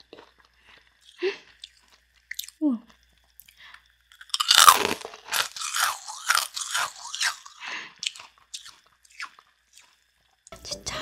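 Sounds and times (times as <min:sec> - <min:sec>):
crunchy chewing: 0:00.0 - 0:02.6, 0:03.4 - 0:10.1
crunchy bite into candy: 0:04.1 - 0:10.0.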